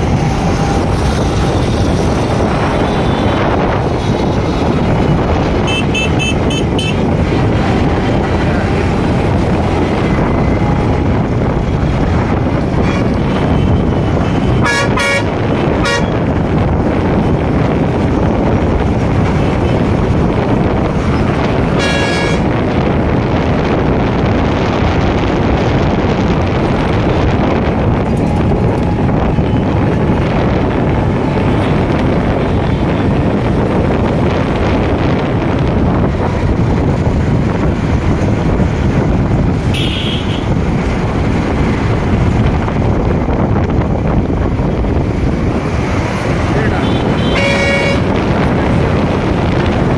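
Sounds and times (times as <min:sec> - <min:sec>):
trucks driving past: 0:00.0 - 0:49.9
vehicle horns tooting: 0:02.6 - 0:03.8, 0:05.6 - 0:07.2, 0:12.7 - 0:16.3, 0:21.7 - 0:22.6, 0:39.6 - 0:40.6, 0:46.6 - 0:48.3.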